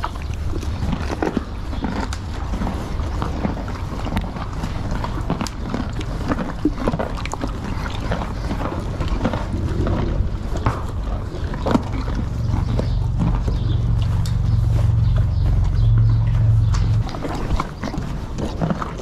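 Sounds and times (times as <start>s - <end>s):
horses crunching carrots: 0.0s - 19.0s
wind rumble on microphone: 7.6s - 19.0s.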